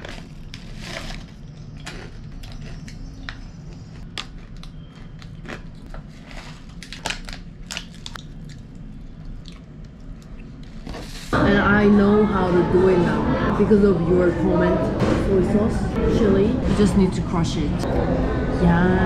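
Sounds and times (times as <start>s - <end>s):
crunchy snack being chewed: 0.0s - 10.4s.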